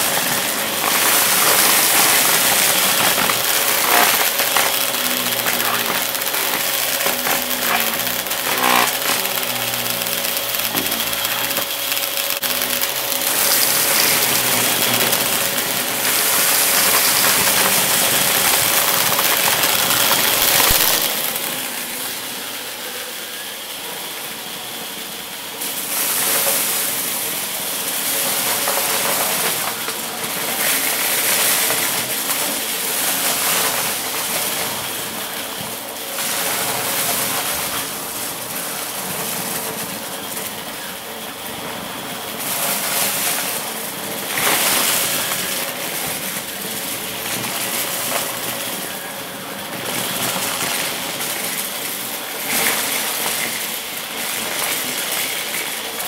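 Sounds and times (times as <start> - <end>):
debris crunching and rattling: 0.0 - 22.0
upright vacuum cleaner running: 0.0 - 56.0.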